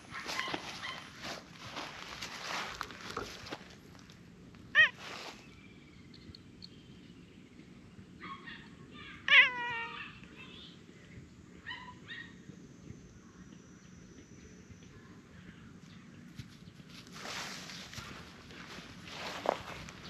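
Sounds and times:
cat meowing: 4.8s - 5.0s, 9.2s - 10.2s.

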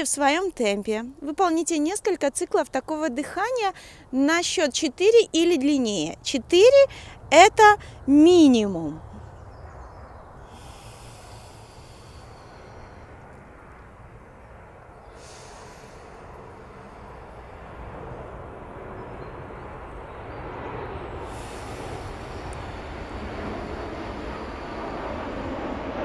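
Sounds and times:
woman breathing deeply: 3.8s - 4.1s, 6.9s - 8.1s, 10.3s - 18.9s, 21.0s - 25.3s
low rumble: 9.0s - 26.0s.

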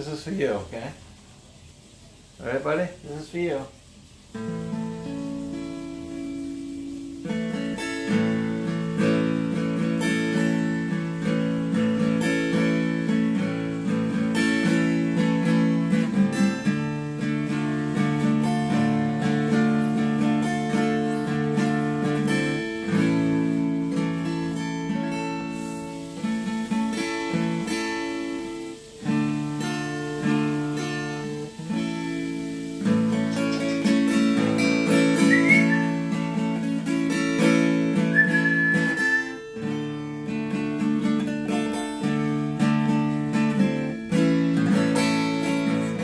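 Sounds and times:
acoustic guitar chords: 4.3s - 46.0s
high whistled note: 32.8s - 36.4s, 37.9s - 39.6s.

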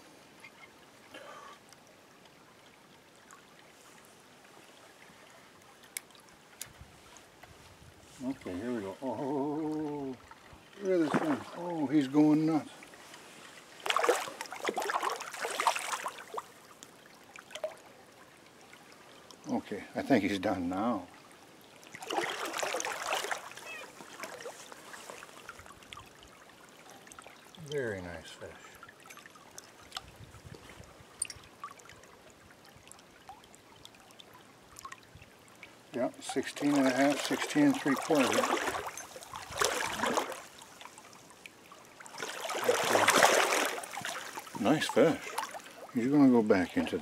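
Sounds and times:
stream running water: 0.0s - 47.0s
light ticks: 5.8s - 6.8s.

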